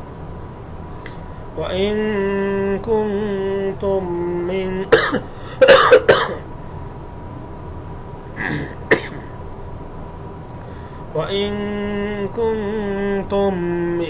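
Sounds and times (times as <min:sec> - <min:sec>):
man chanting: 0:01.6 - 0:05.0, 0:11.2 - 0:14.0
man clearing his throat: 0:04.9 - 0:06.4, 0:08.4 - 0:09.4.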